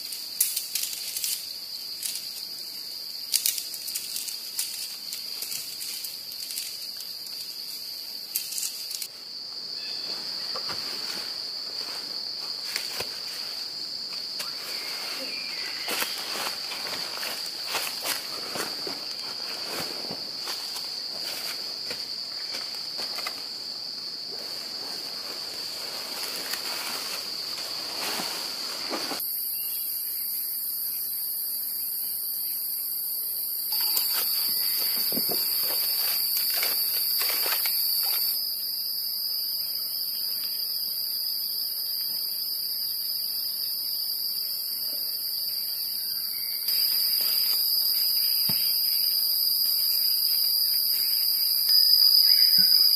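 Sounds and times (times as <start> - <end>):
higher insect chorus: 0.0 - 52.9
insects droning: 0.0 - 52.9
rustling on dry leaves: 10.0 - 23.6, 24.3 - 29.2, 33.7 - 38.4, 46.7 - 49.0.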